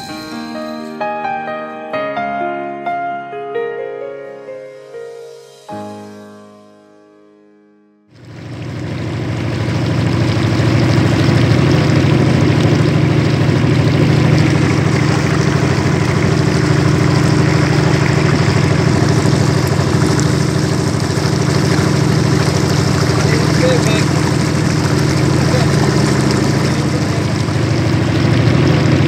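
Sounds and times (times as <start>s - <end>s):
motorboat engine running: 8.1s - 29.0s
water rushing along hull: 8.1s - 29.0s.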